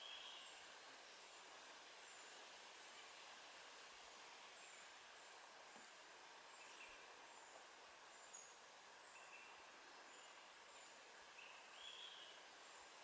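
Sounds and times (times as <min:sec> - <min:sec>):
lower bird chirps: 0:08.2 - 0:12.4.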